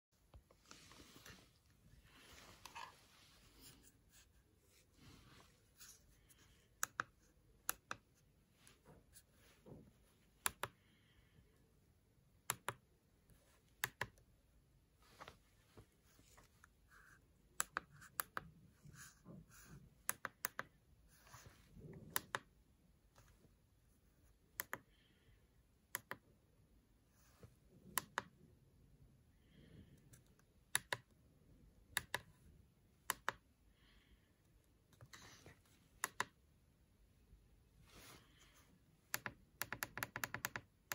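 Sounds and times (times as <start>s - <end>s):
faint handling rustle: 0.2s - 6.4s.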